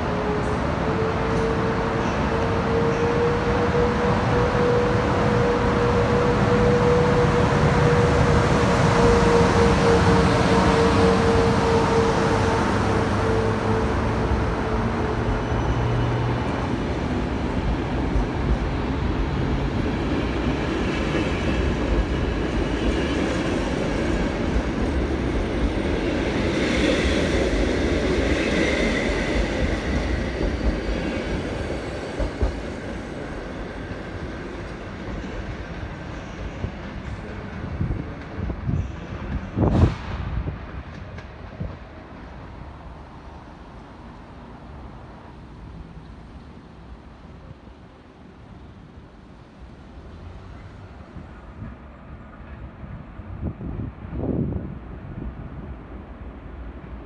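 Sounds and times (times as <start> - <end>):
electric locomotive tone: 0.0 - 19.8
train wheel rumble: 0.0 - 46.5.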